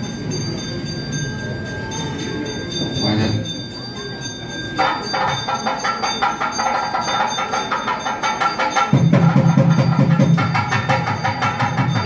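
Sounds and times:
murmur of people: 0:00.0 - 0:12.0
rhythmic percussion and bell ringing: 0:00.0 - 0:12.0
steady ringing tones: 0:00.0 - 0:12.0.

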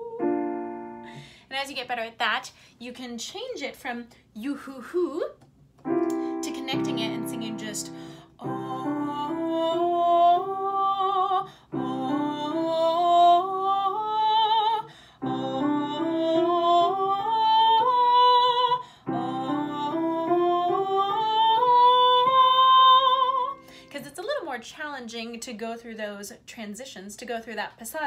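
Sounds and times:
sustained piano chords: 0:00.0 - 0:01.2, 0:05.8 - 0:24.0
woman singing vocal exercise: 0:00.0 - 0:01.3, 0:06.1 - 0:24.0.

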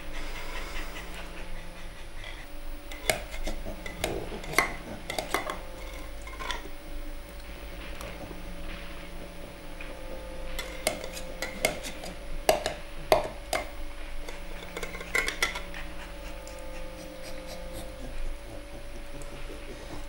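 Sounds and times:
faint steady hum: 0:00.0 - 0:20.0
spoon clinking in metal can: 0:10.6 - 0:13.6.

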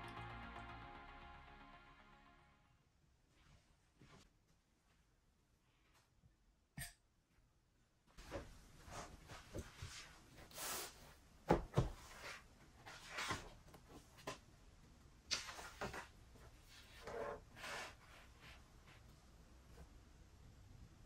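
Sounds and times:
notebook pages rustling: 0:12.0 - 0:14.4.

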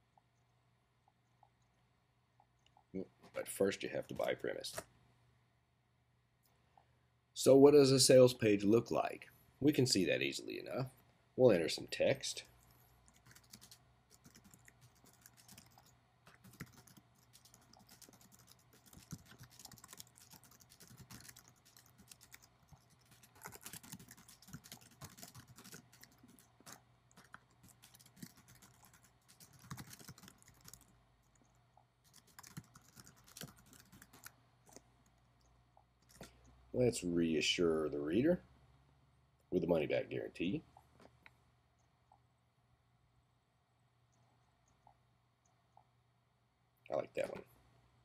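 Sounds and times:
computer keyboard typing: 0:13.1 - 0:34.8.

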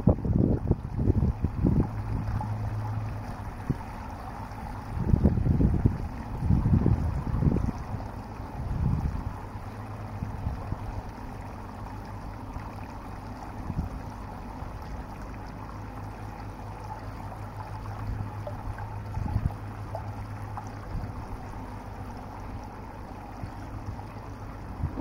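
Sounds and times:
shallow running water: 0:00.0 - 0:25.0
low rumble: 0:23.2 - 0:25.0.

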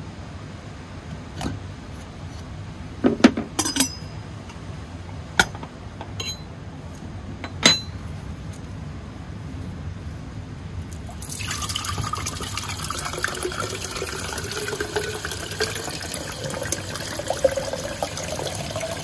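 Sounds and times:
metal percolator parts clinking: 0:03.6 - 0:04.2, 0:05.4 - 0:06.5.

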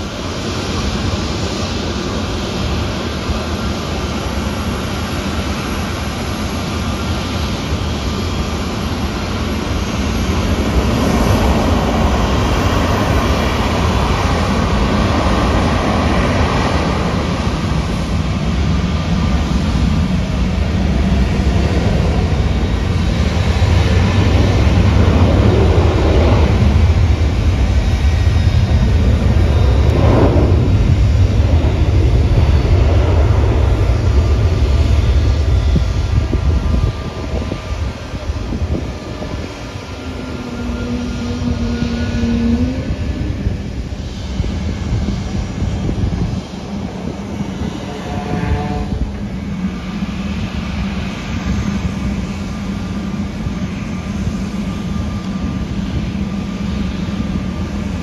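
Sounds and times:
jet engines rumbling: 0:00.0 - 0:58.0.

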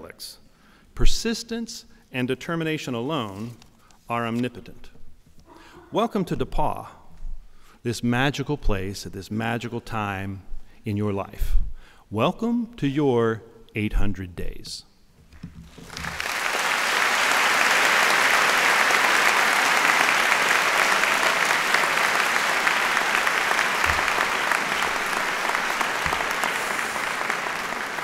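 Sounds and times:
audience applauding: 0:15.7 - 0:28.0.

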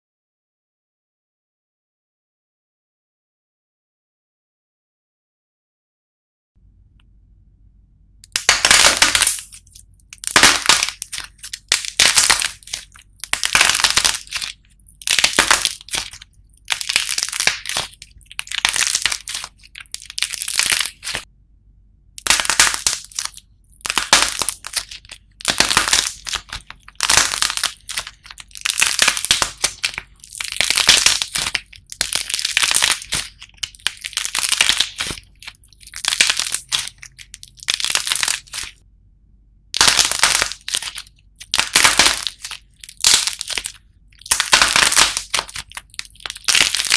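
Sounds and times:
clay figures cracking and crunching: 0:08.2 - 0:21.3, 0:22.2 - 0:38.8, 0:39.8 - 0:46.9.

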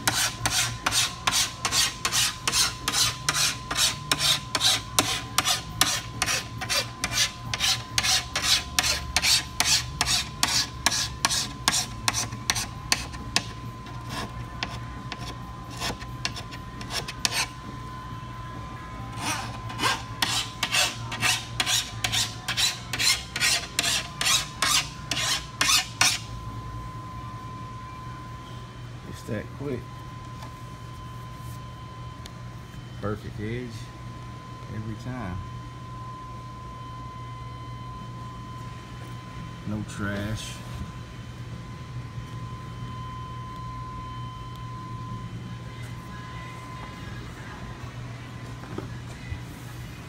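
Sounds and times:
file rasping on glass: 0:00.0 - 0:17.5, 0:19.2 - 0:26.2.

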